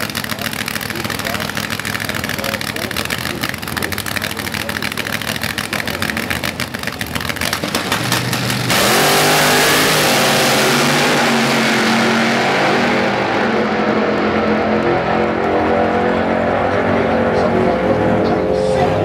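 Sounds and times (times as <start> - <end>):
drag car engines pulsing: 0.0 - 19.0
cars launching at full throttle: 4.4 - 19.0.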